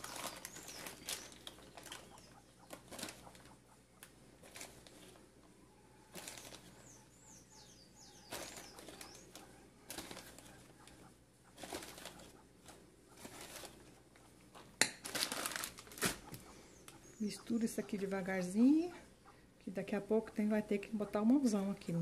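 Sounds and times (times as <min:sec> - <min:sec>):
plastic bag crinkling: 0:00.0 - 0:03.5, 0:04.4 - 0:05.2, 0:06.1 - 0:06.8, 0:08.3 - 0:10.9, 0:11.6 - 0:13.9, 0:14.5 - 0:16.4
faint high bird chirps: 0:00.0 - 0:04.0, 0:05.6 - 0:11.2, 0:16.3 - 0:19.4.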